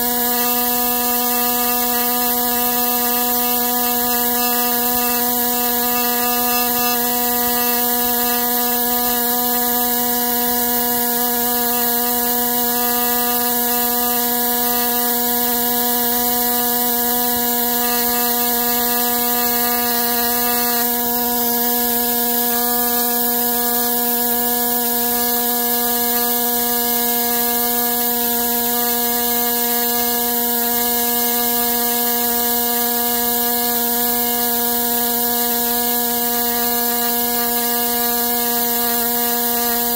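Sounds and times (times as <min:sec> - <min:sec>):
air scribe buzzing: 0:00.0 - 0:39.9.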